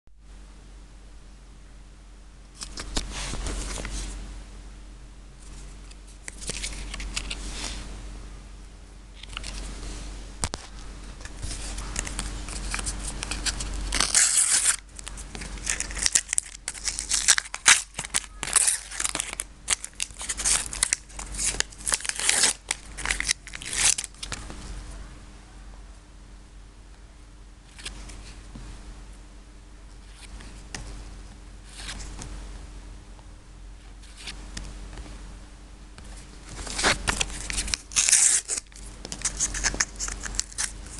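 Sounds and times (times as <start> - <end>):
stickers shuffling: 5.8 - 7.7, 10.5 - 24.7, 36.0 - 40.9
wrapper crinkling and rustling: 11.2 - 24.4, 36.4 - 40.9
packet tearing: 11.8 - 24.4, 36.6 - 40.8.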